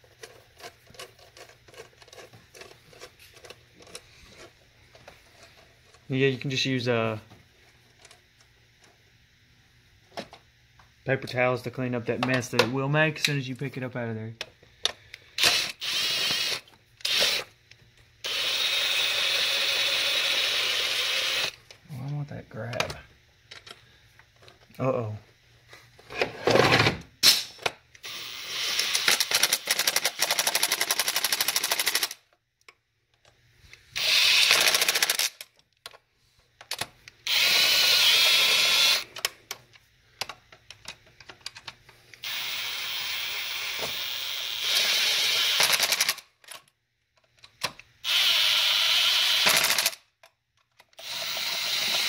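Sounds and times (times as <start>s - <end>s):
power tool rattling bolts: 28.6s - 32.2s, 34.0s - 35.5s, 44.6s - 46.6s, 48.1s - 50.0s.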